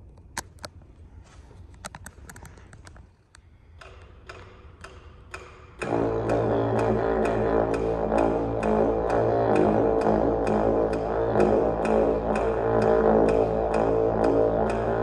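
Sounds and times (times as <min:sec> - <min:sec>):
sharp clicks and ticks: 0:01.8 - 0:15.0
didgeridoo drone: 0:05.8 - 0:15.0.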